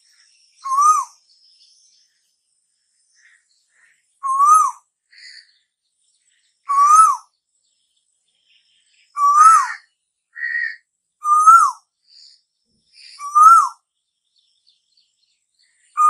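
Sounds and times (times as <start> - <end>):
koel whistled calls: 0.6 - 1.2, 4.2 - 5.4, 6.7 - 7.3, 9.1 - 9.8, 10.4 - 11.8, 13.2 - 13.8.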